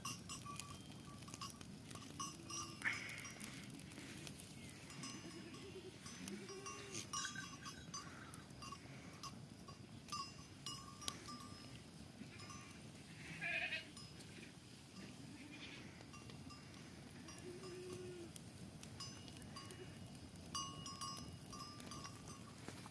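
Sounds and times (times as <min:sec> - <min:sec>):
animal bells tinkling: 0:00.0 - 0:22.9
wood fire crackling: 0:00.0 - 0:22.9
goats bleating: 0:13.2 - 0:14.0, 0:17.2 - 0:18.3.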